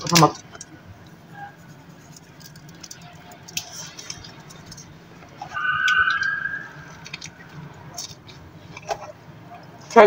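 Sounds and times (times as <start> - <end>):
fingers handling a burger bun: 0.0 - 5.4
high-pitched squeak-like tone: 5.4 - 7.1.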